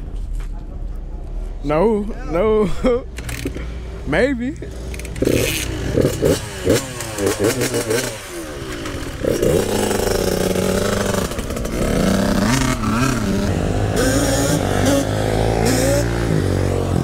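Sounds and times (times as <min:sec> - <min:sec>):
dirt bike engine revving: 0:04.6 - 0:17.0.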